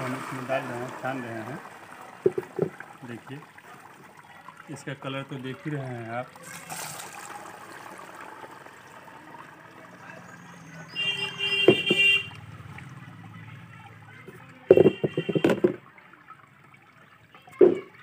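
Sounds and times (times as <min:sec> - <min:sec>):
liquid trickling through strainer: 0:00.0 - 0:18.0
knocking and clattering: 0:02.2 - 0:02.8, 0:14.7 - 0:15.8.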